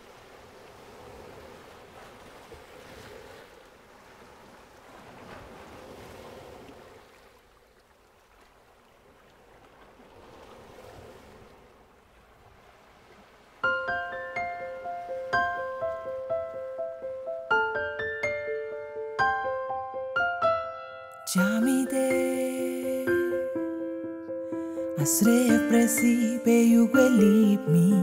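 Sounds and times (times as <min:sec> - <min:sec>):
faint waves washing ashore: 0:00.0 - 0:19.0.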